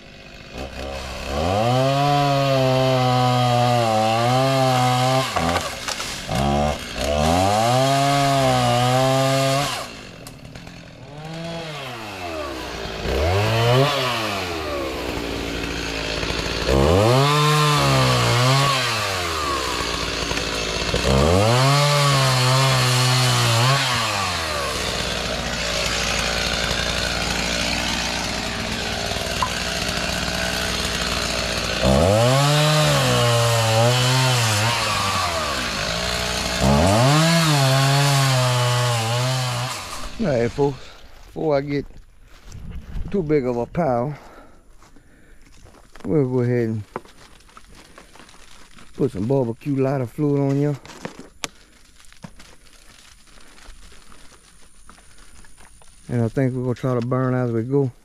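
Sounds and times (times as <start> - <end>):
chainsaw revving and cutting: 0.0 - 41.1.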